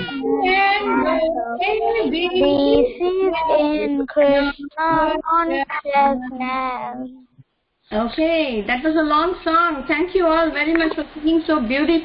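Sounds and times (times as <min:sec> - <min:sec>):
children singing: 0:00.0 - 0:06.4.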